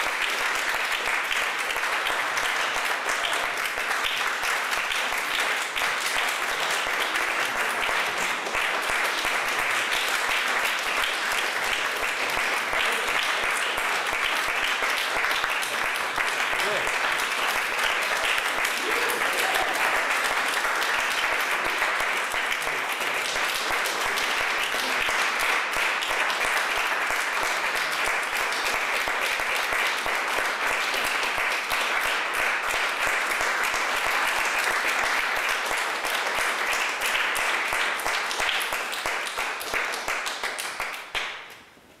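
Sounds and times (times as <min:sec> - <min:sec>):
audience applauding: 0:00.0 - 0:41.6.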